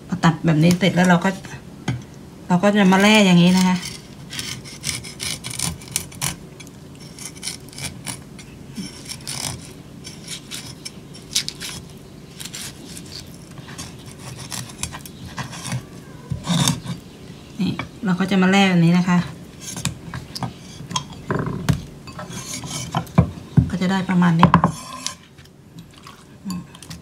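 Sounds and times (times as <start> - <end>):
cleaver scraping fish on wooden board: 3.0 - 6.4, 7.0 - 17.0, 19.6 - 23.3, 24.6 - 25.3.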